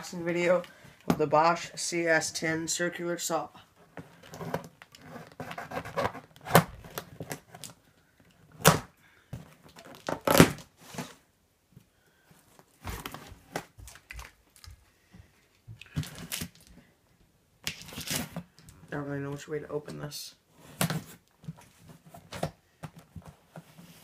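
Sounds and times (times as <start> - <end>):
strap scraping cardboard: 3.8 - 7.6.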